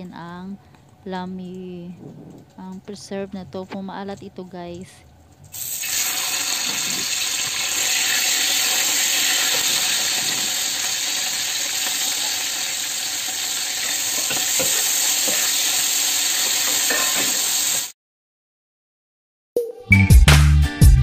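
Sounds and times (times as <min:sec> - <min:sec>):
tofu sizzling in hot oil: 0:05.6 - 0:17.9
metal spatula scraping pan: 0:16.5 - 0:17.4.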